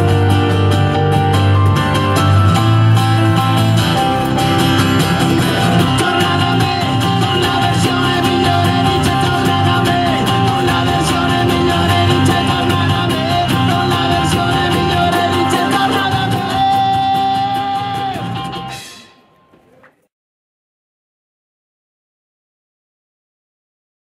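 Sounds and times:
drum kit beat: 0.0 - 19.1
keyboard: 0.0 - 19.7
acoustic guitar: 0.0 - 19.8.

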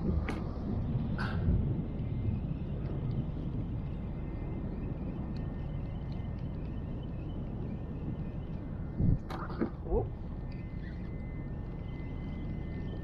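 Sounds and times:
wind rumble on microphone: 0.0 - 13.0
faint small ticks: 2.7 - 7.4, 10.4 - 13.0.

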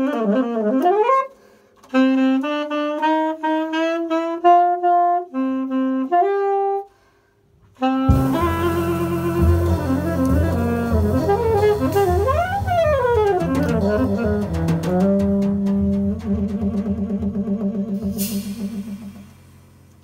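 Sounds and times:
jazz trio playing: 0.0 - 1.3, 1.9 - 6.8, 7.8 - 20.0
saxophone run: 7.8 - 19.4.

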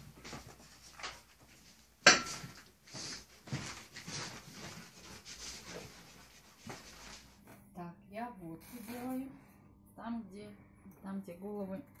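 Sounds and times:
footsteps on wooden floor: 2.4 - 5.9.

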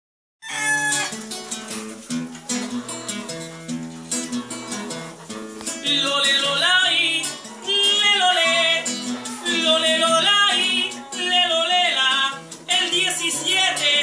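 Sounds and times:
acoustic guitar strummed: 0.4 - 14.0
man singing: 5.7 - 14.0.

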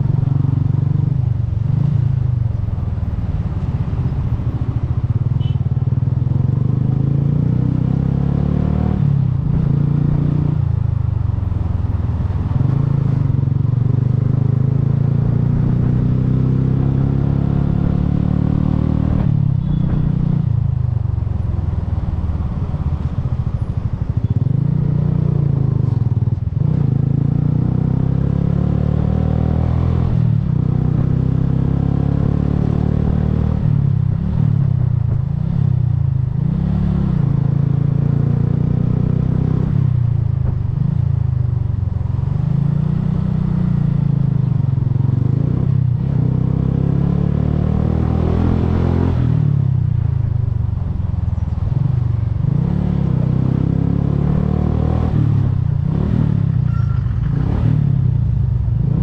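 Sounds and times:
motorcycle engine revving: 23.3 - 59.0.

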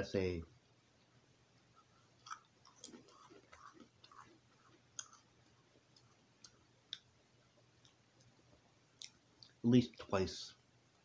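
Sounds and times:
chewing crackers: 1.8 - 7.1.

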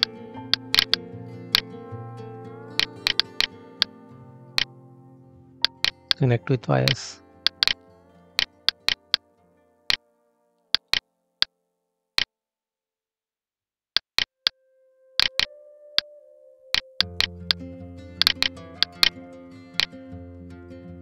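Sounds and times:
quiet background music: 0.0 - 11.4, 14.5 - 21.0
computer mouse clicking: 5.6 - 6.2, 7.5 - 7.8, 8.4 - 9.2, 10.8 - 11.0, 15.2 - 15.5, 18.2 - 19.1.

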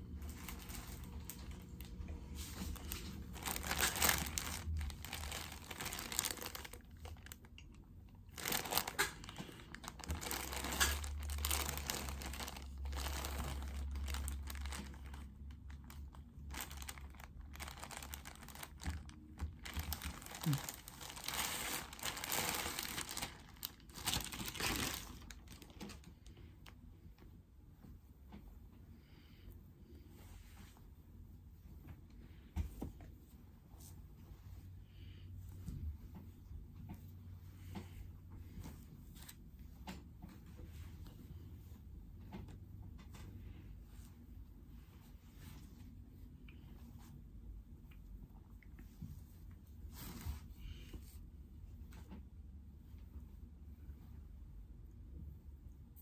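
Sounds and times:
packaging crinkling and tearing: 0.1 - 26.4.

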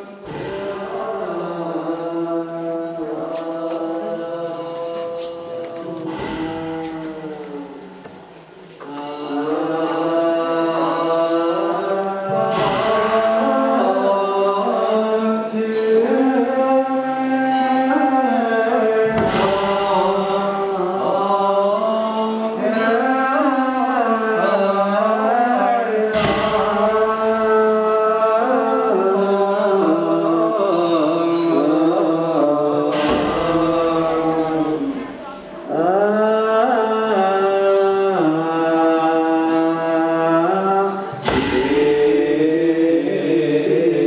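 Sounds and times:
voices chanting: 0.0 - 44.0
deep struck drum beat: 41.3 - 42.3.

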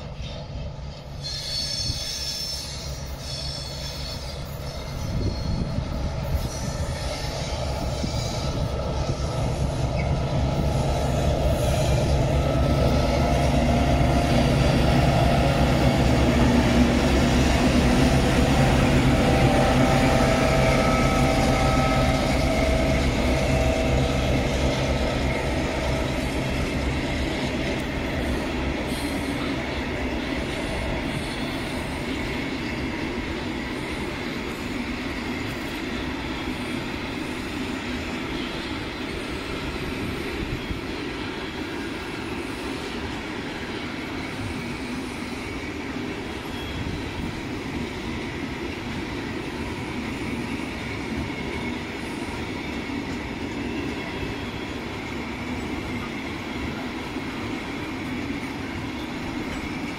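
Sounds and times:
diesel locomotive engine drone: 0.0 - 59.9
thin wheel squeal: 1.2 - 5.7.

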